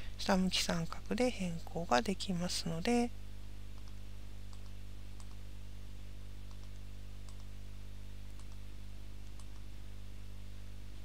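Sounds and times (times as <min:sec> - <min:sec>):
steady low hum: 0:00.0 - 0:11.0
computer mouse clicking: 0:03.8 - 0:05.4, 0:06.5 - 0:07.5, 0:08.3 - 0:08.6, 0:09.2 - 0:09.7.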